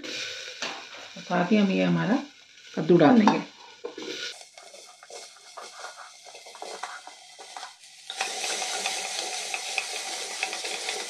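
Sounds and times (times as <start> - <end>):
sizzling in hot oil: 0.0 - 11.0
wooden spoon scraping pot: 3.8 - 11.0.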